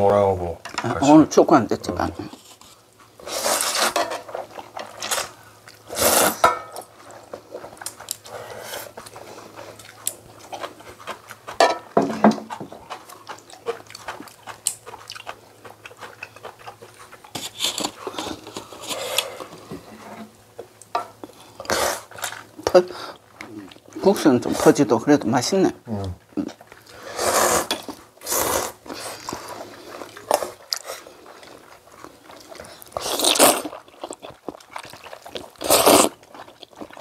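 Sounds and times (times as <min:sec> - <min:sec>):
chewing: 0:02.2 - 0:19.8, 0:20.5 - 0:24.2, 0:26.0 - 0:37.0
slurping noodles and broth: 0:03.2 - 0:06.4, 0:21.5 - 0:23.2, 0:26.8 - 0:33.9, 0:35.1 - 0:37.0.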